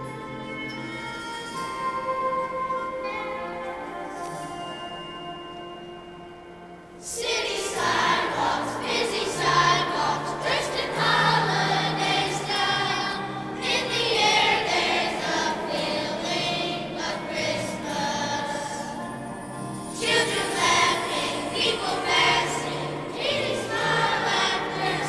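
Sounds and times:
instrumental accompaniment: 0:00.0 - 0:25.0
children's choir singing: 0:07.0 - 0:25.0.

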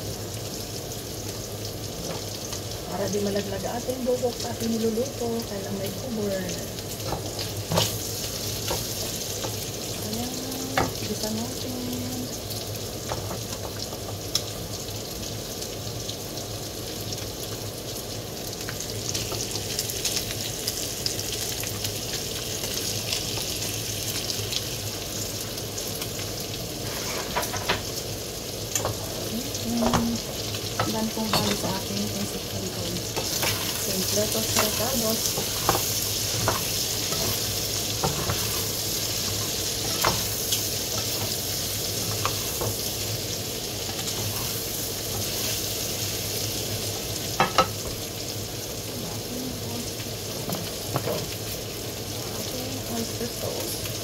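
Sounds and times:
vegetables sizzling in a wok: 0:00.0 - 0:54.0
spatula scraping and knocking pan: 0:26.8 - 0:27.9, 0:33.2 - 0:41.4, 0:43.9 - 0:45.4.

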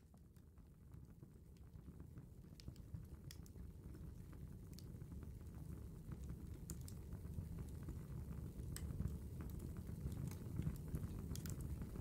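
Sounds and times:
fire crackling: 0:06.2 - 0:12.0.

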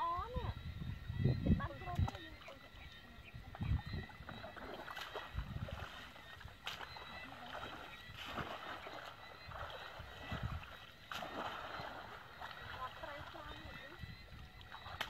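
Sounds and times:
muddy water sloshing and splashing: 0:01.4 - 0:15.0.

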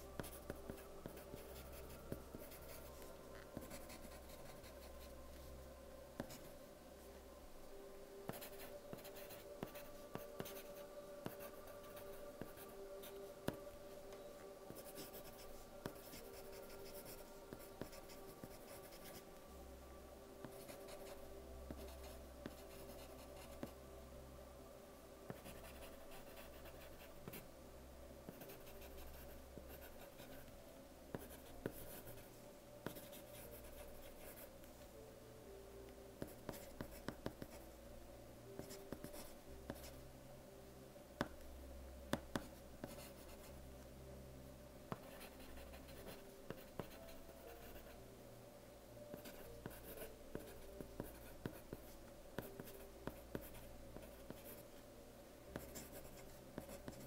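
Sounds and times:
pencil writing on paper: 0:03.6 - 0:05.1, 0:08.3 - 0:13.2, 0:14.7 - 0:19.2, 0:25.3 - 0:27.4, 0:28.3 - 0:30.5, 0:31.2 - 0:32.2, 0:32.8 - 0:34.4, 0:36.2 - 0:37.6, 0:38.6 - 0:39.9, 0:42.2 - 0:43.5, 0:44.9 - 0:47.0, 0:47.6 - 0:47.9, 0:49.1 - 0:54.6, 0:55.6 - 0:57.0.

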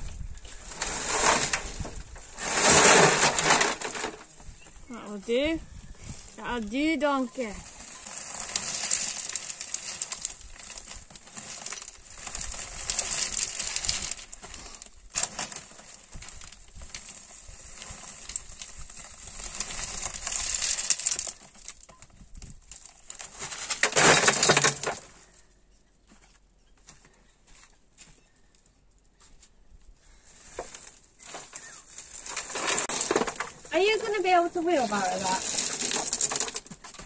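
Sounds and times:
plastic sack rustling: 0:00.5 - 0:04.5, 0:06.0 - 0:21.9, 0:22.7 - 0:25.4, 0:30.1 - 0:37.0
stones clattering into metal wheelbarrow: 0:00.5 - 0:05.1, 0:07.3 - 0:25.4, 0:30.3 - 0:37.0
stones clinking and rattling: 0:00.5 - 0:05.1, 0:07.2 - 0:25.2, 0:30.5 - 0:37.0.

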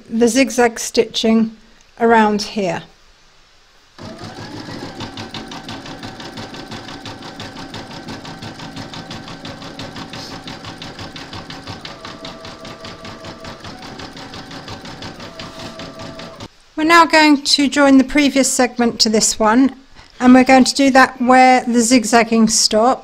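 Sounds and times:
embroidery machine motor whine: 0:04.0 - 0:16.5
embroidery machine needle clatter: 0:04.0 - 0:16.5.

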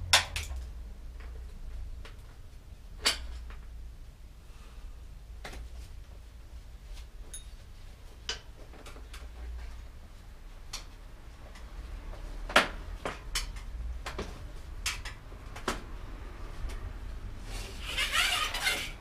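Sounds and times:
tools clicking and knocking on bike wheel: 0:00.0 - 0:02.4, 0:12.4 - 0:16.0.

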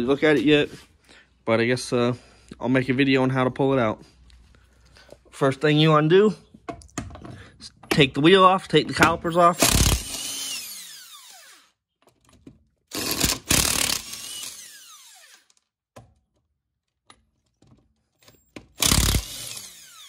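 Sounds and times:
impact wrench hammering: 0:18.6 - 0:19.9.

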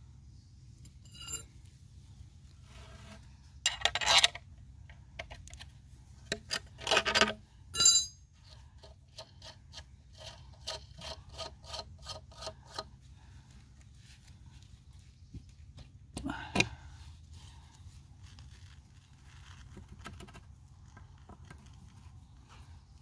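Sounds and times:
ringing metallic clink: 0:00.9 - 0:01.5, 0:07.8 - 0:08.2
spanner scraping on bolt: 0:00.9 - 0:01.5, 0:02.9 - 0:04.5, 0:06.3 - 0:12.9.

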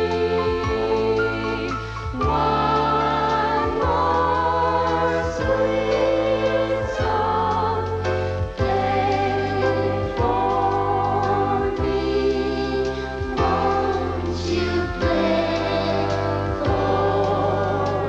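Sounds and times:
slow gentle song: 0:00.0 - 0:18.0.

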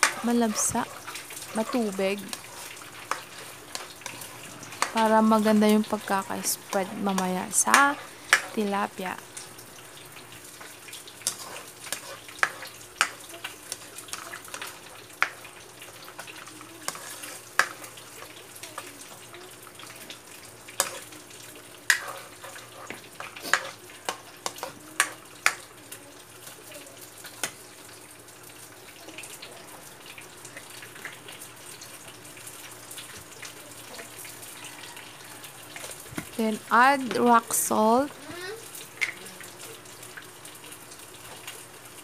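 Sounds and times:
sauce bubbling: 0:00.0 - 0:42.0.

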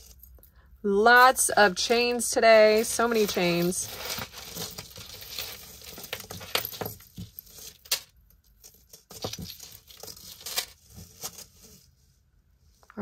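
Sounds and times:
metal chains clinking: 0:00.0 - 0:00.5, 0:01.1 - 0:10.8.

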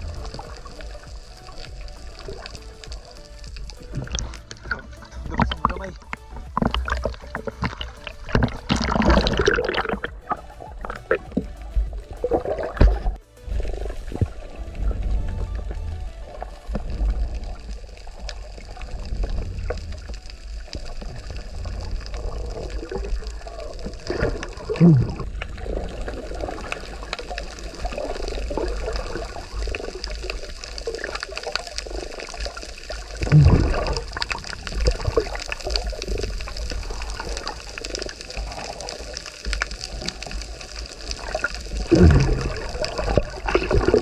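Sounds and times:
underwater rumble of moving water: 0:00.0 - 0:44.0
gurgling bursts: 0:06.6 - 0:11.2, 0:21.5 - 0:30.0, 0:33.0 - 0:39.0, 0:41.2 - 0:44.0.

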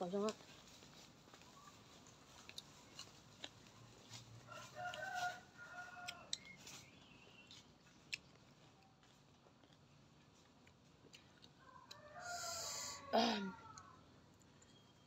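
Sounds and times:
faint rooster crowing: 0:04.1 - 0:06.9, 0:11.6 - 0:14.2.

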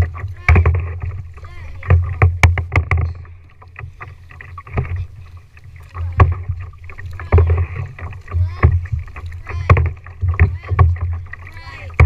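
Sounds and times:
paddle strokes clicking and splashing: 0:00.0 - 0:12.0
water rumbling against plastic hull: 0:00.0 - 0:12.0.

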